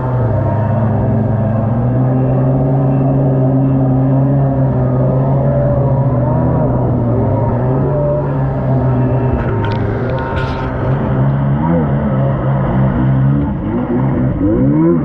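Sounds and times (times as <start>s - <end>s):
water rushing: 0.0s - 14.4s
jet ski engine running: 0.0s - 15.0s.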